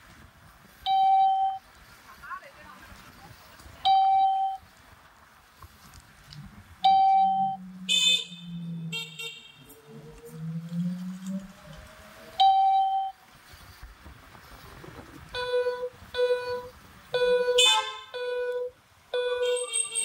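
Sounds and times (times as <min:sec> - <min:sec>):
vehicle horn honking: 0:07.1 - 0:09.8, 0:15.3 - 0:20.0
harsher horn honk: 0:07.2 - 0:09.9, 0:15.4 - 0:20.0.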